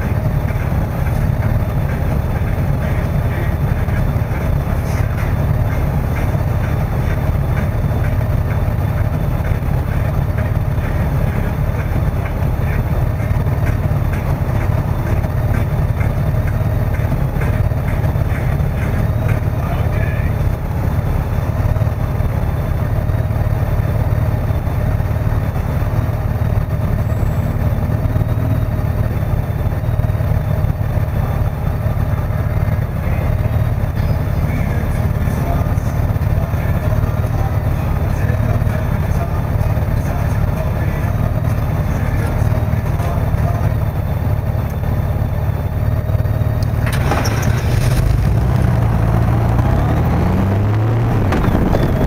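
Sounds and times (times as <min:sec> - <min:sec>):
motorcycle engine idling and revving: 0:00.0 - 0:52.0
wind noise: 0:51.0 - 0:52.0.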